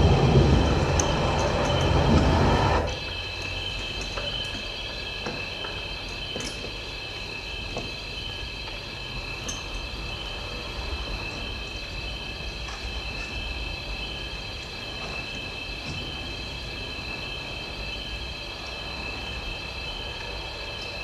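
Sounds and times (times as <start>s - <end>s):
low rumble: 0.0s - 3.2s
high-pitched chirring drone: 0.0s - 14.7s.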